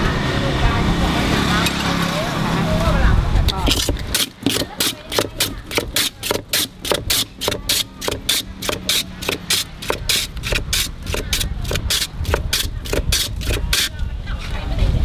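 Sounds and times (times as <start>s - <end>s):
ice shaving rasping scrape: 3.5s - 14.6s.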